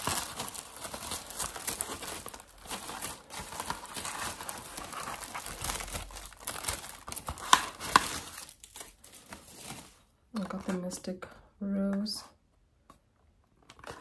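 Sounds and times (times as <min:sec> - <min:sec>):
packaging crinkling: 0:00.0 - 0:10.8.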